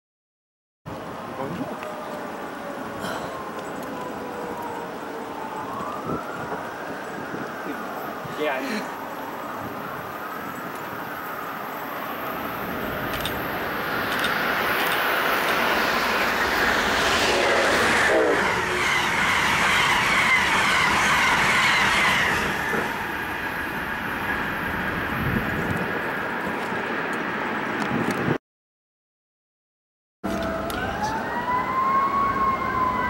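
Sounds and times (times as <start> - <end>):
train passing at speed: 2.4 - 28.2.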